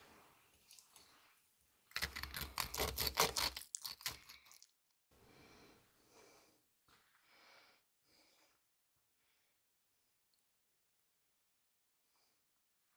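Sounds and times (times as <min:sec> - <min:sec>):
crinkling and tearing: 0:01.9 - 0:04.7.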